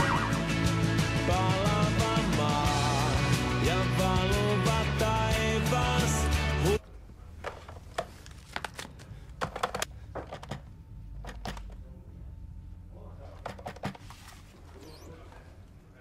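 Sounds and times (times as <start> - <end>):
faint low hum: 6.8 - 16.0
objects clicking on a desk: 7.4 - 11.8, 13.4 - 14.0.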